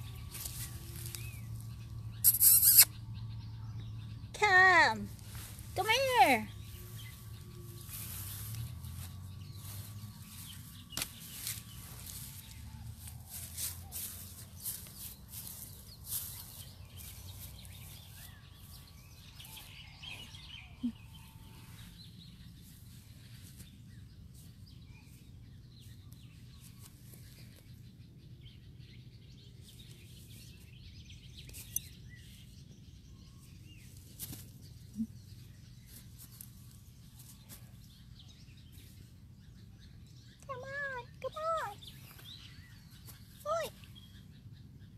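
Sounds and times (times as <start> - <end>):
steady low hum: 0.0 - 2.2, 2.8 - 40.5
faint bird chirps: 0.0 - 28.7.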